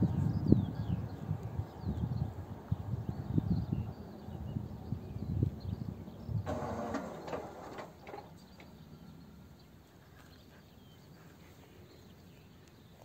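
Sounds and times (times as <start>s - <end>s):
faint outdoor background: 0.0s - 13.0s.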